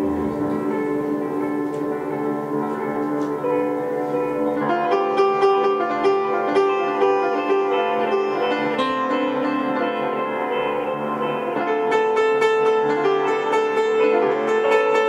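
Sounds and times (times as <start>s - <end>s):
electric guitar: 0.0s - 15.0s
upright piano: 0.0s - 15.0s.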